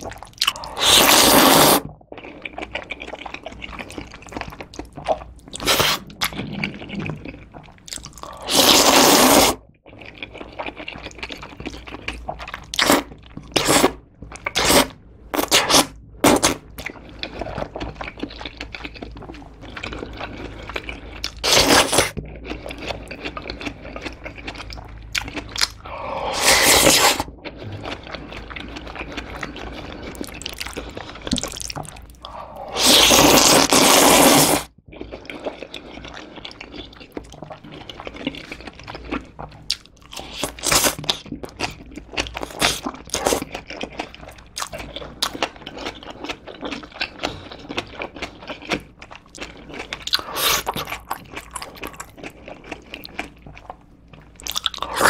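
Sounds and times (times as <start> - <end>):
chewing: 0.0 - 14.8, 15.4 - 55.0
loud noodle slurps: 0.6 - 1.9, 5.6 - 7.0, 8.3 - 9.6, 25.8 - 27.3, 32.4 - 34.7, 50.2 - 50.9.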